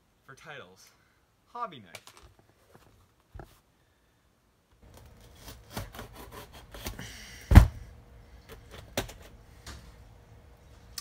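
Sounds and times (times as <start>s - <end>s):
knife cutting through tape: 5.1s - 7.0s
loud thump: 7.5s - 7.8s.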